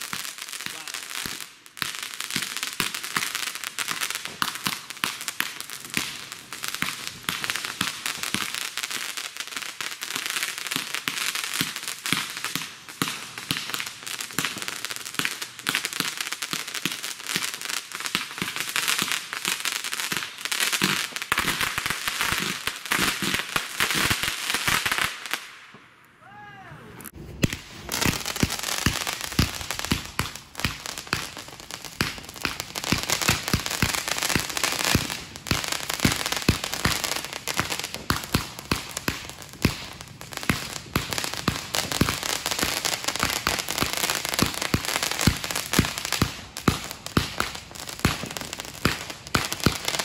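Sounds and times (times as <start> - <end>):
fireworks crackle: 0.0 - 26.0, 27.0 - 50.0
fireworks firing shots: 20.1 - 25.8, 27.0 - 50.0.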